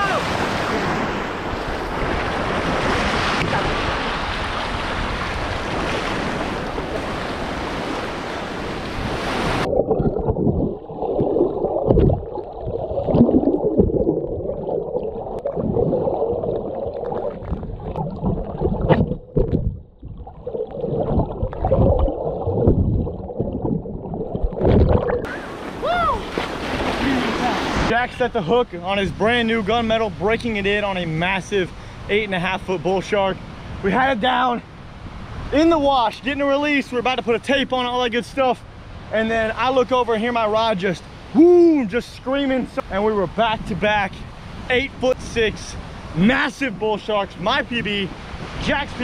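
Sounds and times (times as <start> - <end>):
surf washing: 0.0 - 9.8, 21.0 - 49.0
muffled underwater sloshing: 0.6 - 27.9
wind buffeting microphone: 15.3 - 27.9.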